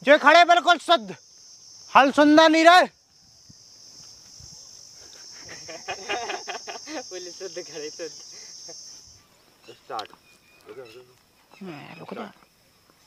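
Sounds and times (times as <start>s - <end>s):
insects droning: 0.0s - 13.0s
people laughing and chattering: 4.9s - 9.2s.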